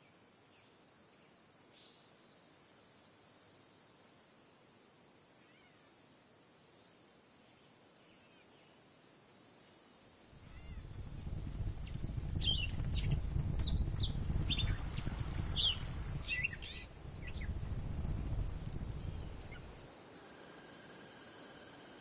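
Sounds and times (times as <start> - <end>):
high insect drone: 0.0 - 22.0
birds chirping: 10.4 - 19.8
low rumbling noise: 10.4 - 19.8.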